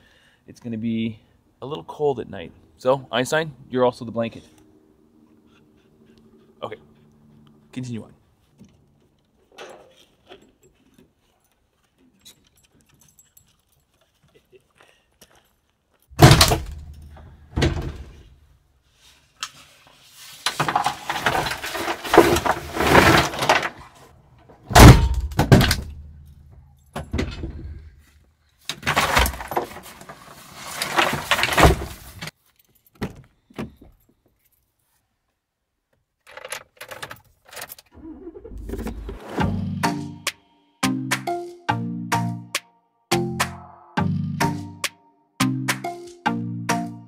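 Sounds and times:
objects rustling and clattering: 8.4s - 24.7s, 25.5s - 35.0s
loud knocks and thuds: 16.2s - 18.2s.

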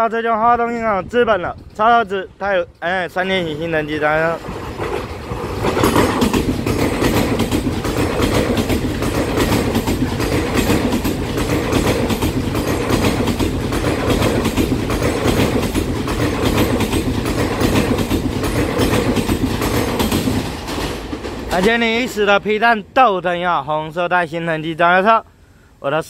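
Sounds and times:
train wheels rumbling on rails: 0.0s - 23.7s
bogies clicking over rail joints: 4.1s - 21.7s.

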